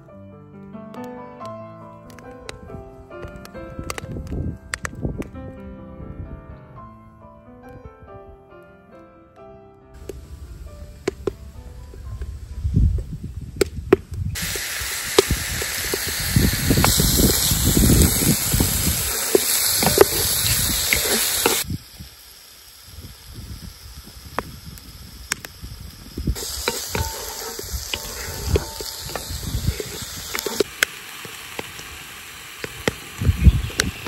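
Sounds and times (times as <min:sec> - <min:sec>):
fire crackles and clicks: 0:00.9 - 0:05.4, 0:10.0 - 0:34.0
meat sizzling in hot oil: 0:14.3 - 0:34.0.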